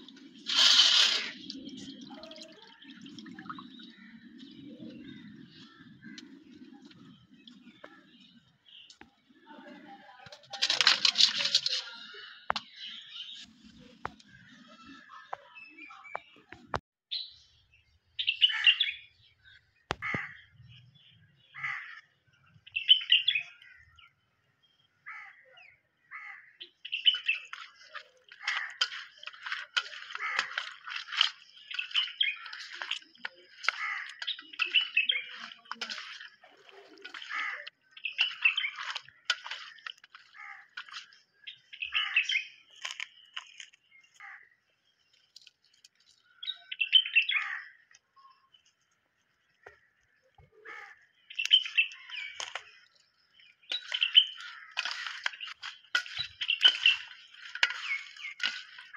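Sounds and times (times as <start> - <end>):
birds calling and chirping: 0.0 - 58.9.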